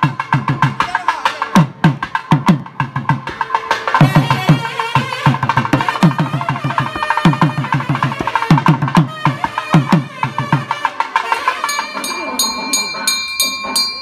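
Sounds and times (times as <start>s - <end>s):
double-reed pipe melody: 4.0s - 13.9s.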